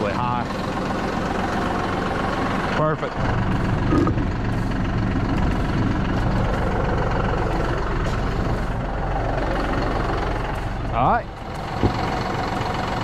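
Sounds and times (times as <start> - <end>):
tractor engine idling: 0.0 - 13.0.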